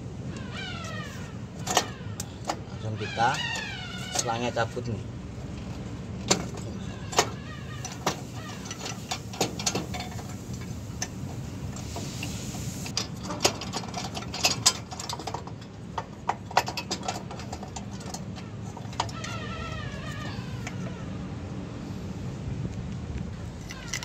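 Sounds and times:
air hose clicks and knocks: 6.2 - 12.0
low engine hum: 17.2 - 23.7.

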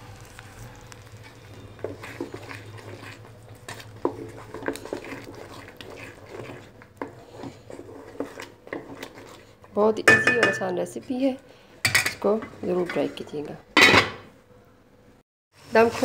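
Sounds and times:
wooden spoon scraping metal pot: 1.2 - 13.6.

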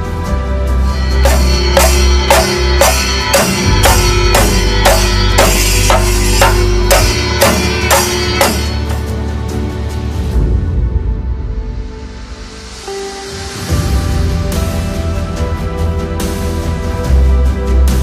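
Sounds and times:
held bass note: 0.9 - 9.0
music with steady drum beat: 0.9 - 9.4.

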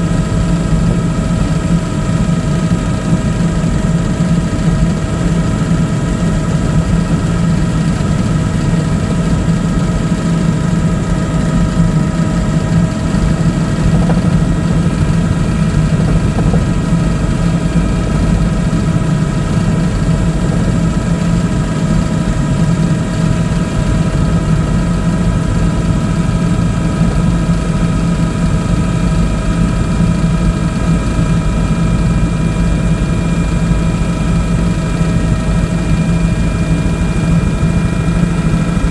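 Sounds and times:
helicopter engine and rotor drone: 0.0 - 38.9.

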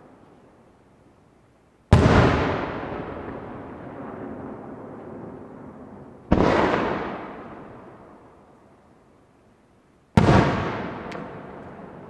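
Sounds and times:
firework bang: 1.9 - 4.5, 10.2 - 11.4.

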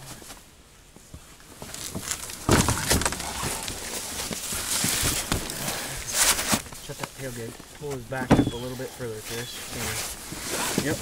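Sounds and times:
carcass scraping and rustling on cardboard: 1.6 - 11.0
heavy thump: 2.4 - 3.6, 8.2 - 8.8.

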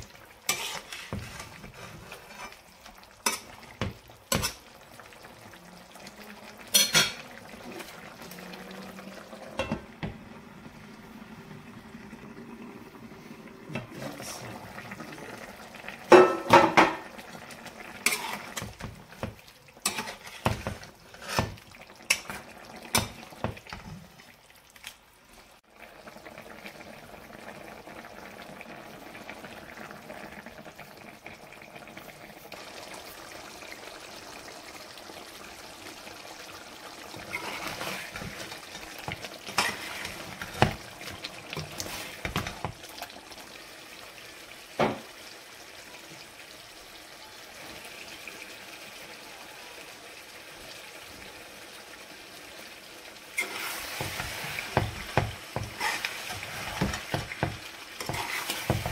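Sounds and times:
curry simmering and bubbling: 0.0 - 58.9
ladle scraping pan: 0.4 - 3.6, 18.0 - 23.9, 37.2 - 42.8, 53.4 - 58.9
cookware clattering against pan: 6.7 - 7.2, 16.1 - 17.1.

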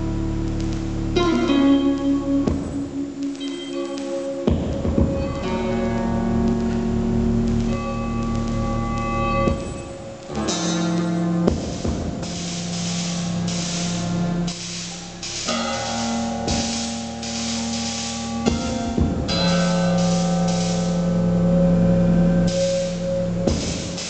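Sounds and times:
synthesized tones: 0.0 - 24.0
sharp percussive hits: 9.4 - 21.0.

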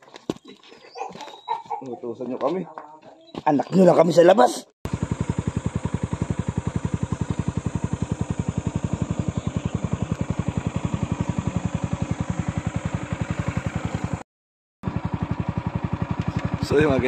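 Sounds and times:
motorcycle engine putter: 15.0 - 16.9.

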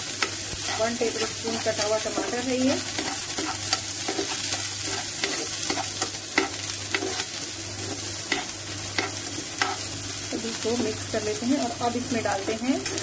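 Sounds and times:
vegetables sizzling in hot oil: 0.0 - 13.0
steel spoon scraping a pan: 0.2 - 9.9, 12.8 - 13.0.

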